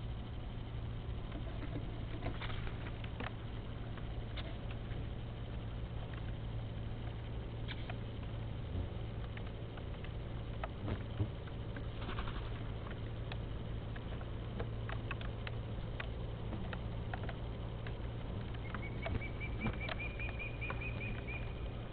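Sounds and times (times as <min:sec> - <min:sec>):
microphone hum and hiss: 0:00.0 - 0:21.9
light taps and clicks: 0:09.2 - 0:21.6
small bird calling high notes: 0:18.6 - 0:21.8.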